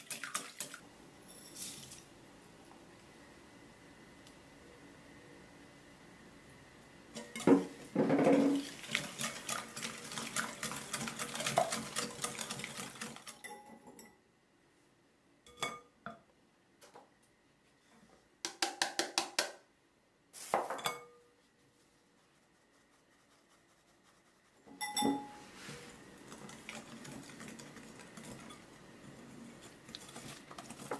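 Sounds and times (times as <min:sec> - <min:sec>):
knocks and taps: 0:18.4 - 0:19.6.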